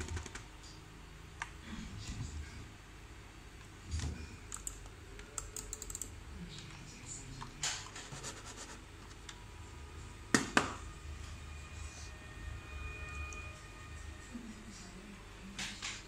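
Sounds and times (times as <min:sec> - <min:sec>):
laptop keyboard clicking: 0:00.0 - 0:00.4.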